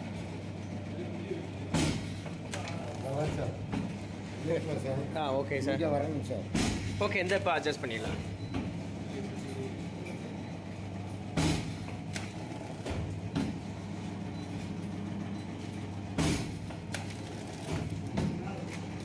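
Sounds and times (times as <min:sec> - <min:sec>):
packing machine humming: 0:00.0 - 0:19.0.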